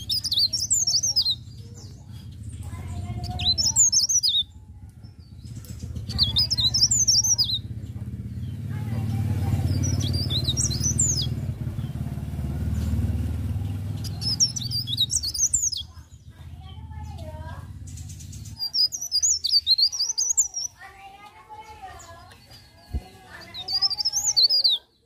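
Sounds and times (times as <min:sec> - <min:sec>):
low rumble: 0:00.0 - 0:19.1
warbler singing: 0:00.0 - 0:25.0.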